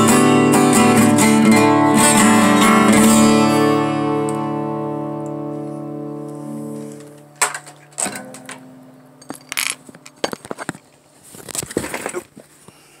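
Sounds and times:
acoustic guitar chord ringing: 0:00.0 - 0:10.2.

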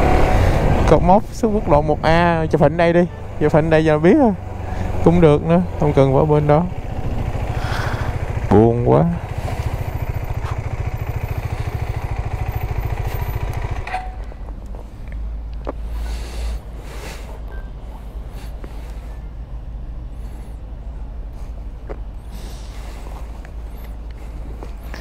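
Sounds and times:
motorcycle engine idling: 0:00.0 - 0:14.6
low steady rumble: 0:00.0 - 0:25.0.

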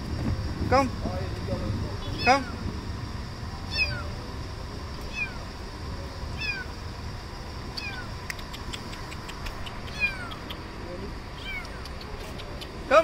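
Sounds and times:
kitten mewing: 0:03.7 - 0:04.2, 0:05.1 - 0:05.5, 0:06.4 - 0:06.7, 0:07.7 - 0:10.6, 0:11.4 - 0:12.2
faint clicks: 0:07.8 - 0:10.6, 0:11.6 - 0:12.8.

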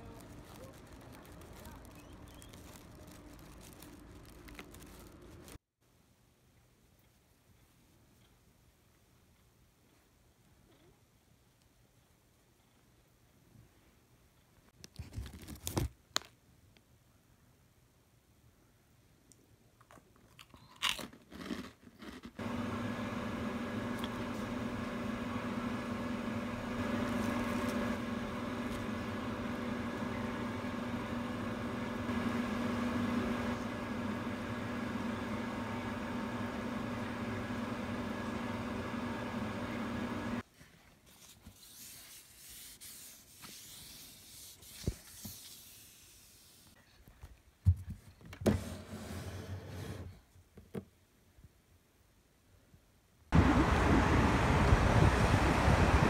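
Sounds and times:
motor hum with held tones: 0:22.4 - 0:40.4.

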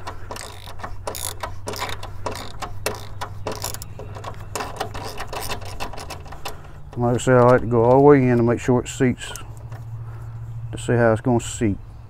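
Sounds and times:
ratchet wrench clicking: 0:00.0 - 0:07.6.

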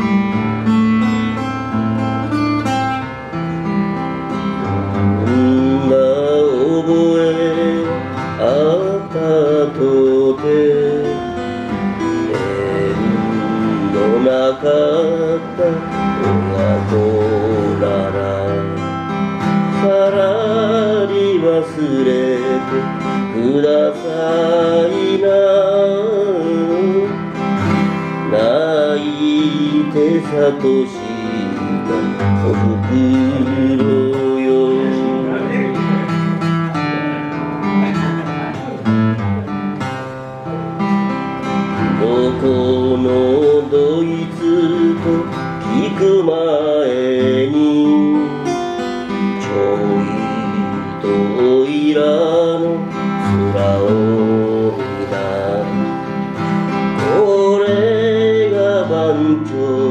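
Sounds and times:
man singing: 0:00.0 - 0:39.2, 0:40.4 - 0:59.9
strummed acoustic guitar: 0:00.0 - 0:59.9.

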